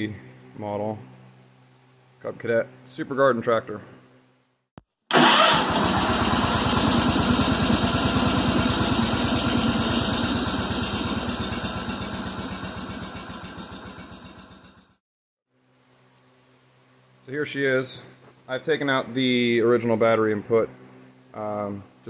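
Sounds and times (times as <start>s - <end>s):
engine starting and running: 5.1s - 15.0s.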